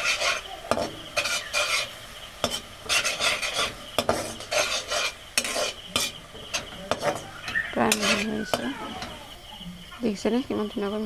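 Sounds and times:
metal spatula scraping pan: 0.0 - 9.4
leaves sizzling in oil: 0.0 - 11.0
spatula knocking against pan: 0.7 - 1.8, 2.4 - 4.7, 5.4 - 9.2.

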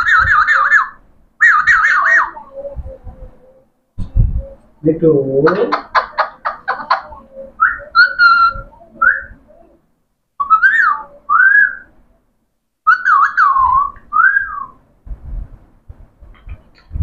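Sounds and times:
parakeets whistling: 0.0 - 2.7, 5.4 - 9.5, 10.4 - 11.9, 12.9 - 14.8.

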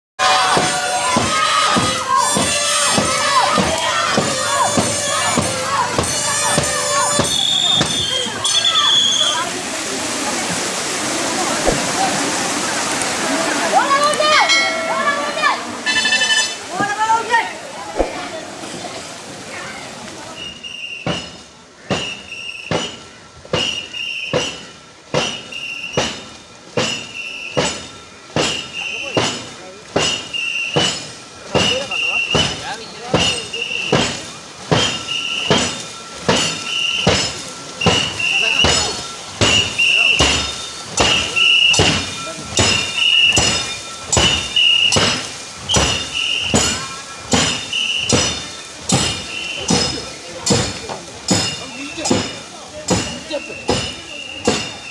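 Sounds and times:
rhythmic knocks: 0.2 - 8.2, 26.8 - 54.9
oars stroking in unison: 0.2 - 19.2, 20.1 - 54.9
short shrill whistle: 4.6 - 9.5, 20.4 - 21.4, 23.6 - 24.6, 25.3 - 26.2, 30.0 - 31.0, 34.7 - 49.9, 53.1 - 54.9
short shrill tone: 14.2 - 16.6.

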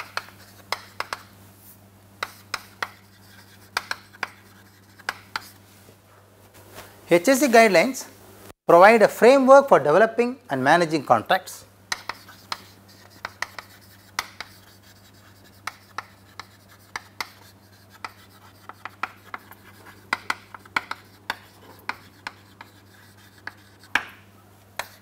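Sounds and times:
chalk scratching on chalkboard: 0.0 - 1.3, 2.2 - 5.6, 11.9 - 24.2, 24.8 - 25.0.

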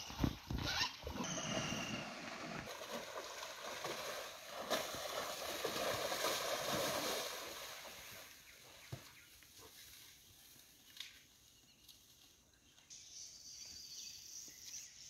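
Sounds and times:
water sloshing and splashing: 0.1 - 8.5.

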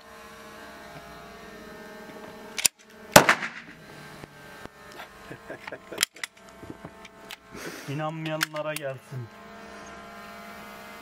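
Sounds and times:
loud pistol shot: 3.1 - 3.8.

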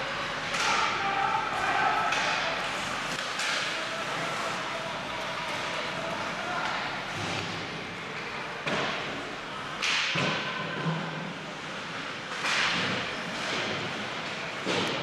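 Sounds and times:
ice rink background: 0.0 - 15.0
skates and sticks hitting on ice: 0.4 - 7.8, 9.8 - 11.3, 12.3 - 15.0.

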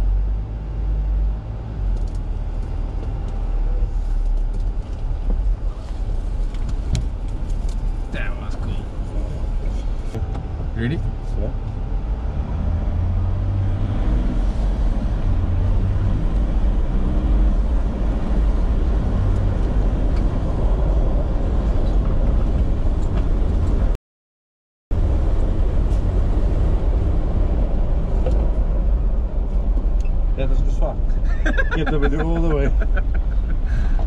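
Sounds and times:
vehicle rumbling on dirt track: 0.0 - 24.0, 24.9 - 34.0.

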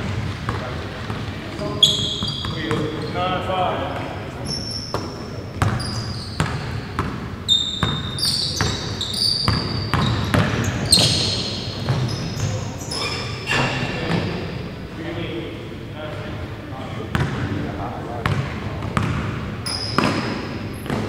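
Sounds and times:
sneakers squeaking on court: 0.0 - 3.4, 4.4 - 14.8, 18.2 - 21.0.

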